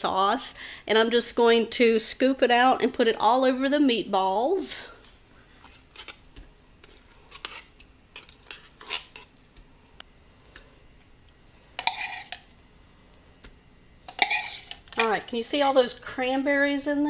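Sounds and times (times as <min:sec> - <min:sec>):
spoon scraping inside tin can: 0:06.8 - 0:09.3, 0:11.8 - 0:12.4, 0:14.1 - 0:15.4.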